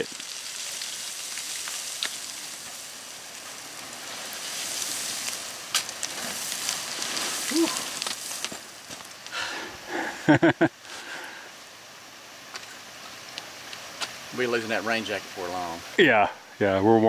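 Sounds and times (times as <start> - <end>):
boots crunching on scree: 3.5 - 9.7.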